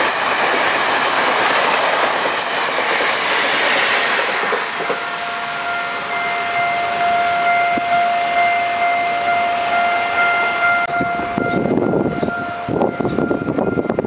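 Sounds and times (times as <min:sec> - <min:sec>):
train coaches rolling past: 0:00.0 - 0:14.0
high whine: 0:04.1 - 0:14.0
wind buffeting microphone: 0:10.6 - 0:14.0.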